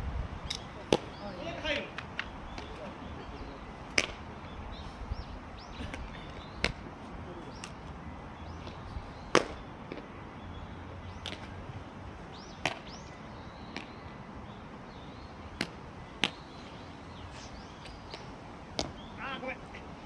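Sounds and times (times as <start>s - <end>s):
baseball smacking into leather glove: 0.5s - 1.2s, 3.9s - 4.2s, 6.6s - 6.8s, 8.7s - 10.0s, 12.6s - 13.0s.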